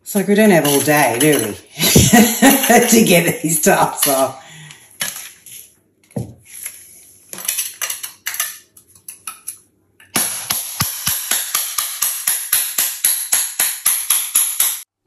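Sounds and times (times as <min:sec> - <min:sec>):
hammer striking a chisel: 0:10.1 - 0:14.9.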